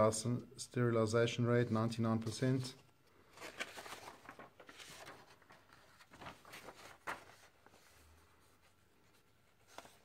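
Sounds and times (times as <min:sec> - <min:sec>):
paper pages rustling: 0:02.3 - 0:10.0.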